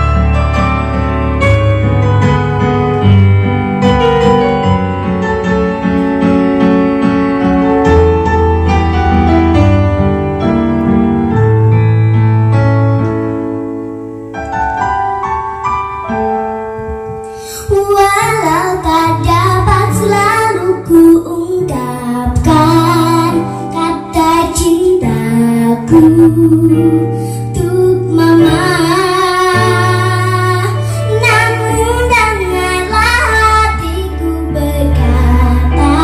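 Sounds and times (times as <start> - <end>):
keyboard piano melody: 0.0 - 36.0
girl singing: 17.4 - 36.0.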